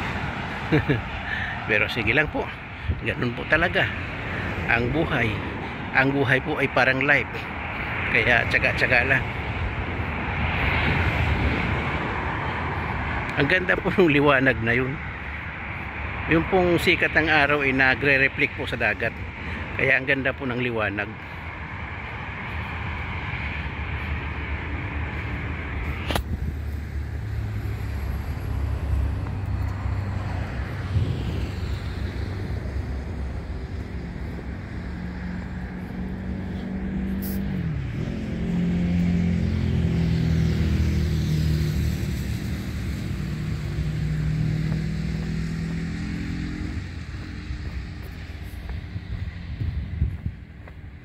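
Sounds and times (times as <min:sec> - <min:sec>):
engine low rumble: 0:00.0 - 0:51.0.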